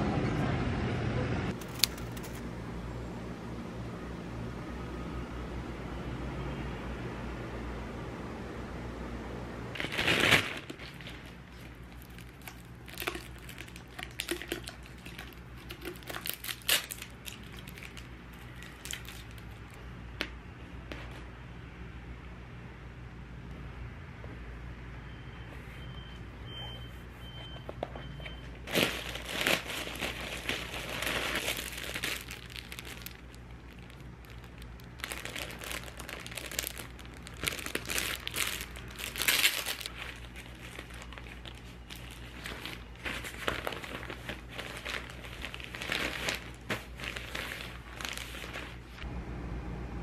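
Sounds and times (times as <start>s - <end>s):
packaging crinkling: 1.5s - 2.5s, 9.8s - 19.8s, 28.7s - 49.0s
faint high beeps: 25.0s - 28.6s.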